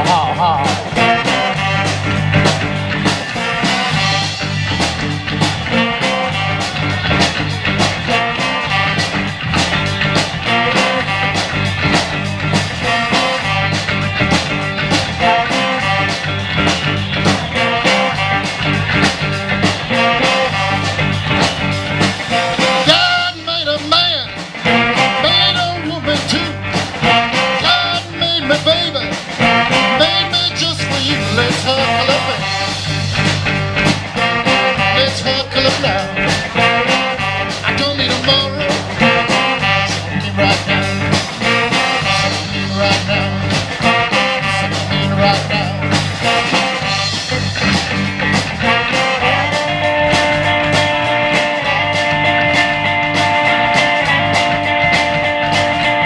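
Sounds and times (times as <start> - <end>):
live rock band with horns: 0.0 - 56.0.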